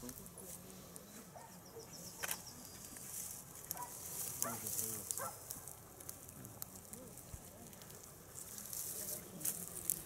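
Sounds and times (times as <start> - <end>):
footsteps through dry grass: 3.0 - 6.3, 7.2 - 10.0.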